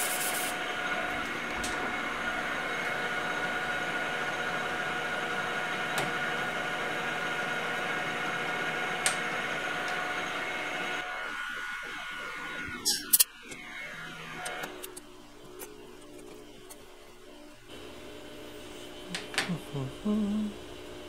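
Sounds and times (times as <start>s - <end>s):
metal lathe running: 0.0s - 16.8s.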